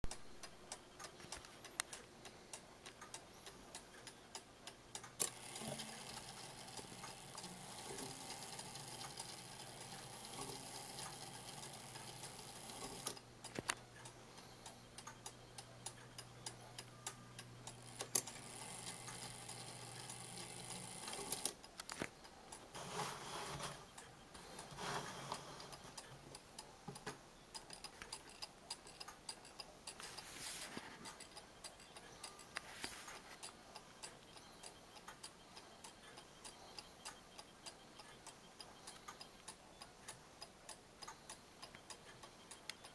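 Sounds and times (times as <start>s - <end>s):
clock escapement ticking: 0.1s - 22.7s, 23.6s - 30.3s, 31.1s - 32.6s, 33.3s - 42.9s.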